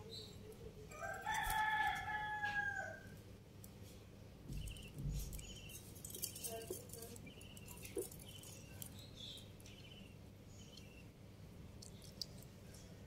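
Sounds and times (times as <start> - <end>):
rooster crowing: 0.9 - 3.1.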